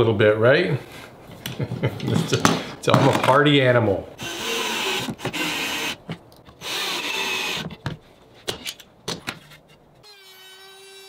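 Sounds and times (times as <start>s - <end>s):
cordless drill driving screws: 4.2s - 6.0s, 6.6s - 7.8s
knocks and clicks of tools: 4.9s - 9.8s.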